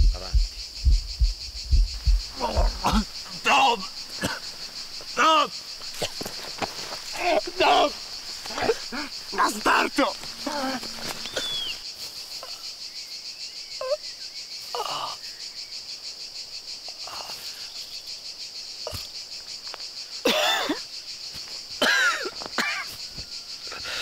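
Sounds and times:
insects chirring: 0.0s - 24.0s
man gasping and sobbing: 8.5s - 9.2s, 10.4s - 11.6s.

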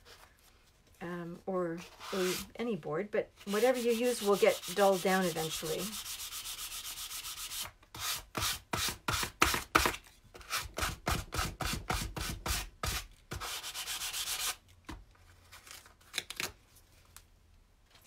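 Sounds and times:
sanding block rasping on board: 3.5s - 9.6s, 10.5s - 14.6s.

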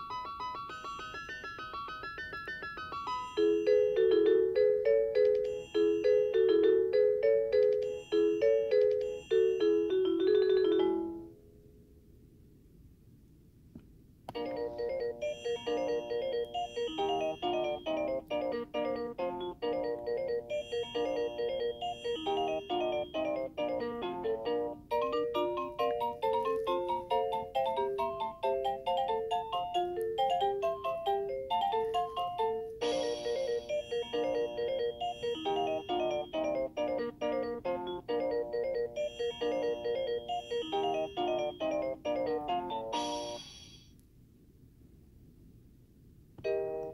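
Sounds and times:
electronic chime melody: 14.4s - 24.4s, 32.8s - 37.6s, 38.2s - 43.9s.

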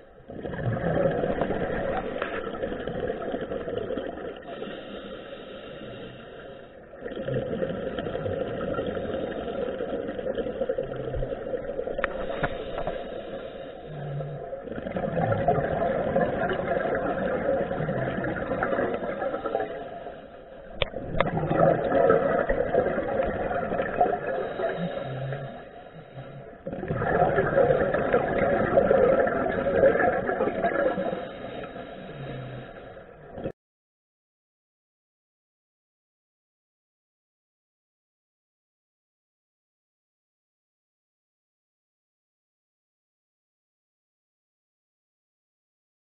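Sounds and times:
underwater regulator breathing bubbles: 0.3s - 33.5s.

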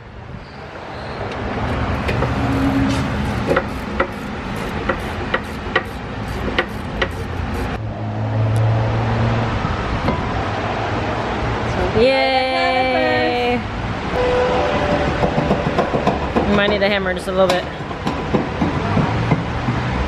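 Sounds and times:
shop background noise: 1.3s - 7.8s.

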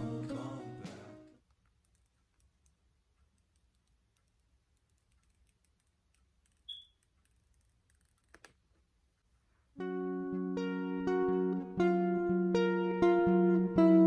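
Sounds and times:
small clicks: 1.4s - 8.6s
short high squeak: 6.7s - 7.0s.

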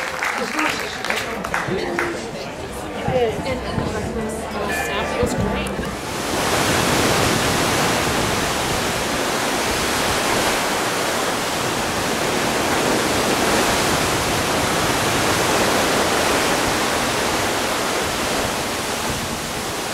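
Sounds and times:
sea water rushing along hull: 5.5s - 19.9s.

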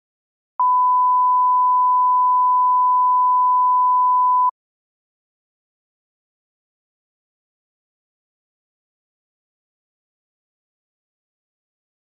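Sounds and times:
steady test tone beep: 0.6s - 4.5s.

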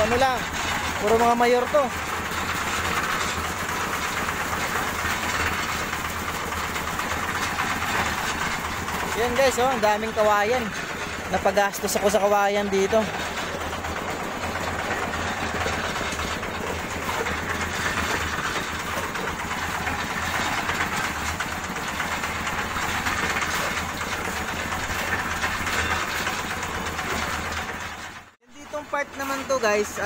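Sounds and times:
concrete mixer engine running: 0.0s - 30.0s.

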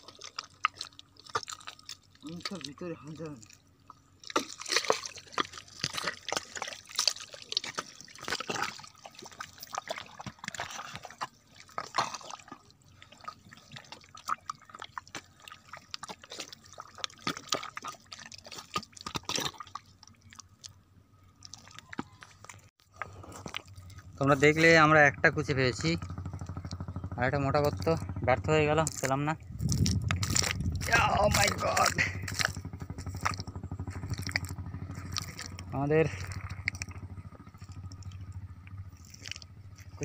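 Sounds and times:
wet mud squelching: 0.0s - 40.0s.

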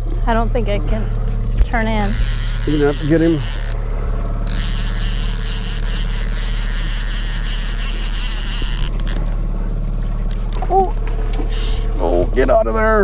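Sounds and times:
outboard motor humming: 0.0s - 13.0s
fishing reel drag buzzing: 1.9s - 9.4s.

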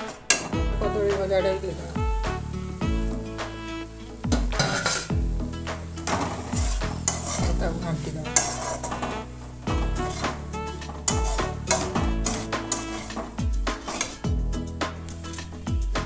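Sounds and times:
wooden spatula scraping pan: 0.0s - 14.3s
oil sizzling: 0.0s - 16.0s
music with thumping bass beat: 0.5s - 1.4s, 2.0s - 7.8s, 8.8s - 16.0s.

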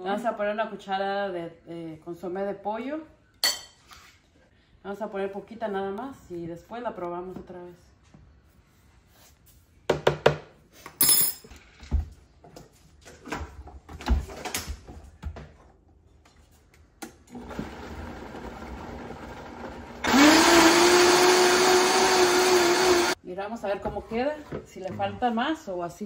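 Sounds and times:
blender motor running: 17.3s - 23.2s.

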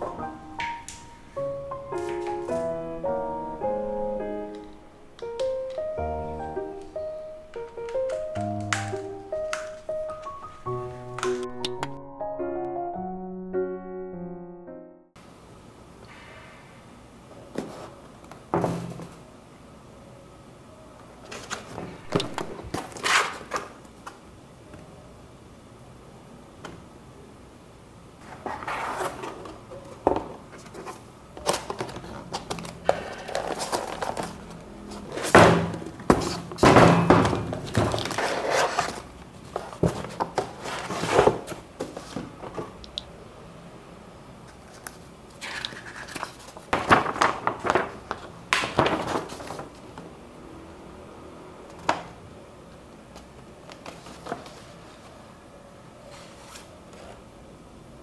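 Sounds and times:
paper poster crackling: 1.9s - 2.8s, 30.5s - 36.7s, 37.6s - 42.2s, 44.5s - 50.0s
packaging rustling and crinkling: 30.4s - 35.4s, 37.5s - 42.4s, 44.6s - 49.9s.

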